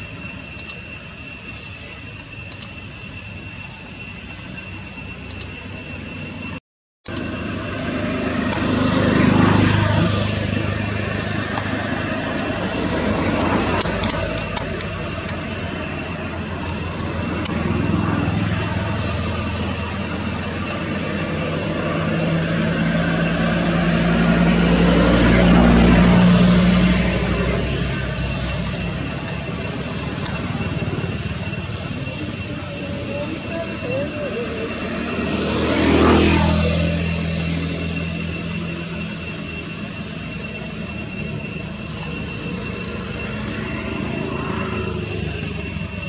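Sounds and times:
steady high-pitched whine: 0.0 - 46.0
motor vehicles passing: 7.4 - 15.7, 16.6 - 32.4, 33.0 - 39.2.

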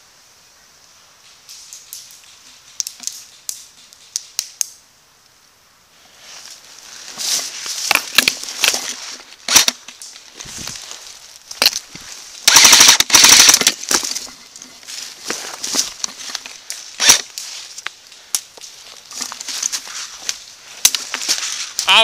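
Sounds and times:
leaves rustling: 0.0 - 22.0
sharp clicks: 9.5 - 10.2, 12.4 - 14.0, 17.0 - 18.7
airsoft gun full-auto burst: 12.5 - 13.6, 17.0 - 17.2.

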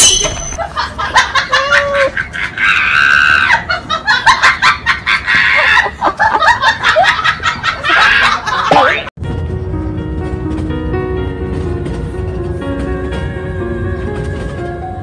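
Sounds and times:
people laughing with shrieks: 0.6 - 9.1.

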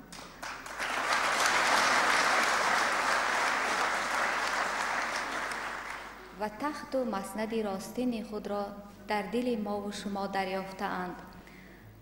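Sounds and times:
audience applauding: 0.0 - 6.3.

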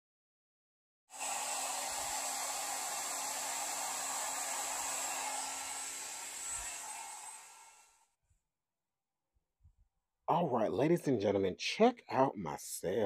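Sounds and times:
hair dryer running: 1.1 - 7.9.

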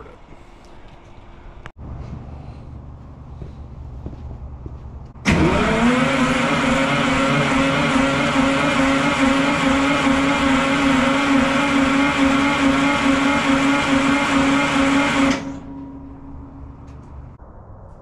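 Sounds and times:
diesel engine running: 1.2 - 17.4.

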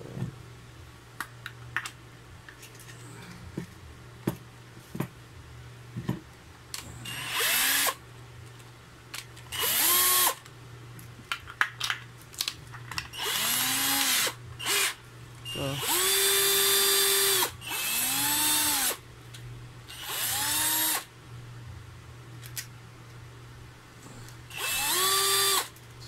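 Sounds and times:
power drill motor whine: 7.0 - 8.0, 9.5 - 10.4, 13.1 - 19.0, 19.9 - 21.1, 24.5 - 25.7.

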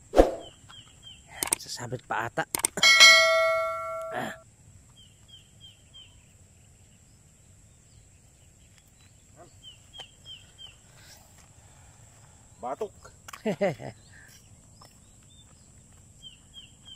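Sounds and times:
bird chirping: 0.1 - 2.0, 2.6 - 4.4
notification ding: 2.8 - 4.4.

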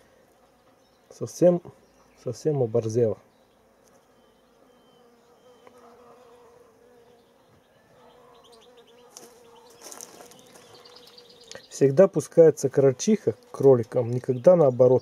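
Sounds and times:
insect buzzing: 3.3 - 11.7, 12.6 - 14.2.

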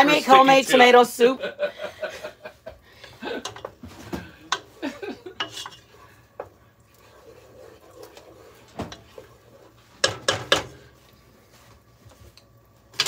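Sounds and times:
wooden spoon stirring in saucepan: 2.7 - 13.0
spoon knocking against pan: 10.0 - 10.8.

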